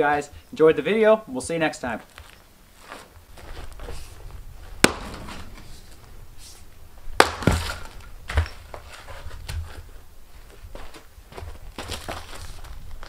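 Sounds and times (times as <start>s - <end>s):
axe splitting wood: 4.8s - 5.8s, 7.2s - 8.5s.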